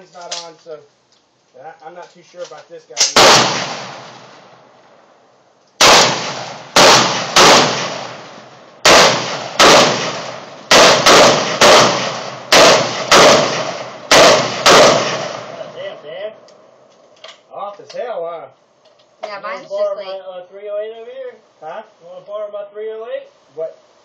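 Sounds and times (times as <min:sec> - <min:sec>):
rifle shots with echo: 0:03.0 - 0:04.5, 0:05.8 - 0:15.8.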